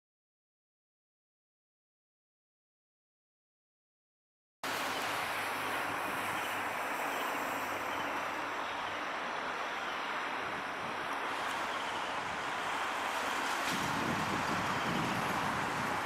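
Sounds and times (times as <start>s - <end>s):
wind: 4.6s - 16.0s
distant traffic: 4.7s - 16.0s.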